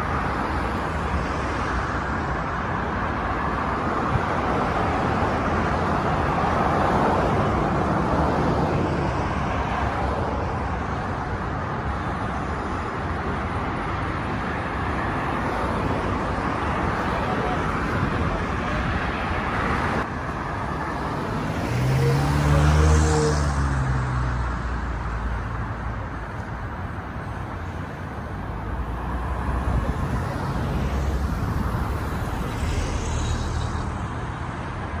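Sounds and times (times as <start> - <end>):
city street traffic: 0.0 - 35.0
vehicle passing close by: 21.0 - 25.0.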